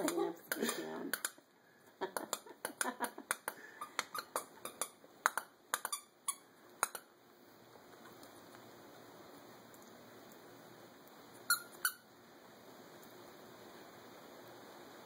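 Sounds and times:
dog toy squeaking: 3.9s - 5.0s, 11.5s - 12.0s.

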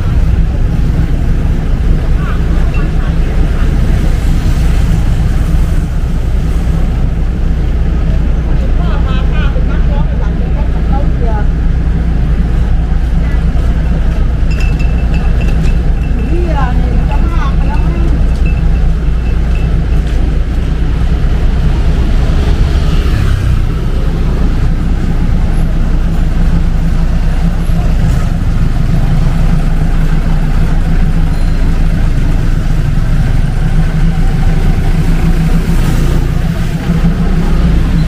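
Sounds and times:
faint voices: 0.0s - 5.5s
traffic engines rumbling: 0.0s - 38.0s.

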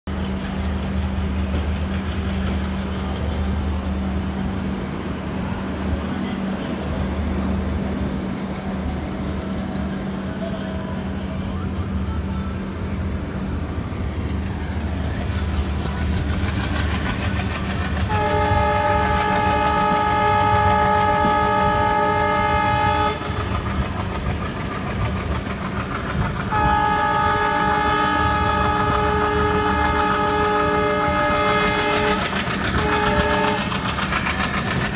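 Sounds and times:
diesel engine chugging: 0.1s - 34.9s
train wheels clickety-clack: 0.1s - 34.9s
locomotive air horn blasts: 18.0s - 23.4s, 26.5s - 33.7s.

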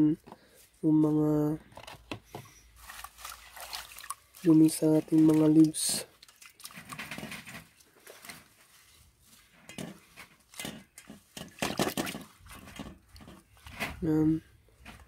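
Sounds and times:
hands splashing water in bowl: 2.9s - 7.8s.

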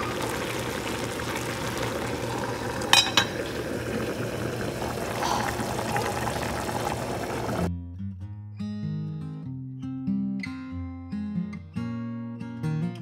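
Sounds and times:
pots boiling and bubbling: 0.0s - 7.7s
pot lid clinking: 2.8s - 4.1s.

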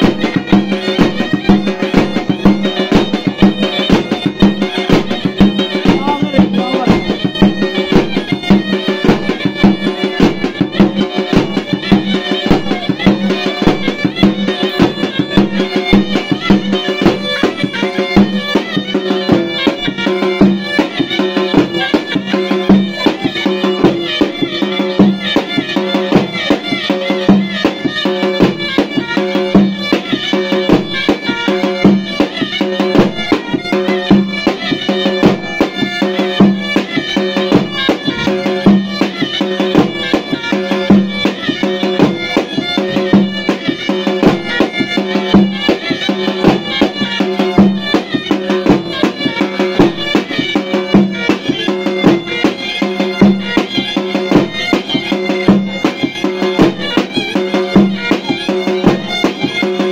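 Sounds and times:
fast drum beat: 0.0s - 59.9s
reedy wind instrument melody: 0.0s - 59.9s.

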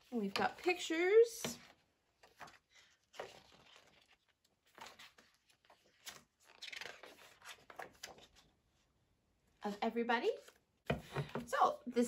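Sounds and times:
paper pages rustling: 1.6s - 8.9s.

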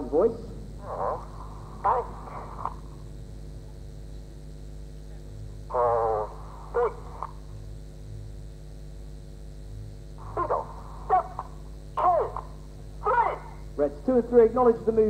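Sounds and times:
electrical hum: 0.0s - 15.0s
distorted radio calls: 0.8s - 3.0s, 5.7s - 7.6s, 10.2s - 15.0s.

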